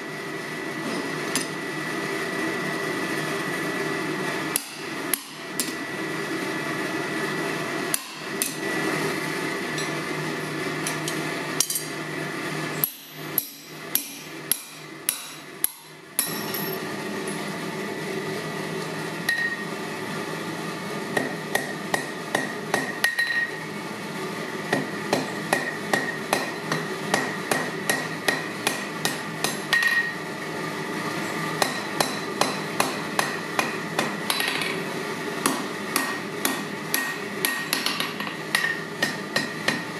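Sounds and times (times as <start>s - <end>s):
steady hum: 0.0s - 39.9s
hammer striking steel on anvil: 4.6s - 5.8s, 7.9s - 8.6s, 12.8s - 16.8s, 19.3s - 19.6s, 21.2s - 23.6s, 24.7s - 30.2s, 31.6s - 34.8s, 35.4s - 39.9s.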